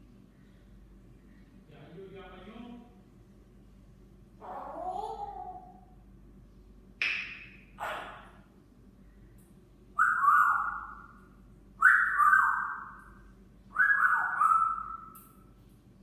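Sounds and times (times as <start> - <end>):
short rough parrot sounds: 7.8 - 8.4
parrot whistling a phrase: 10.0 - 11.0, 13.8 - 15.2.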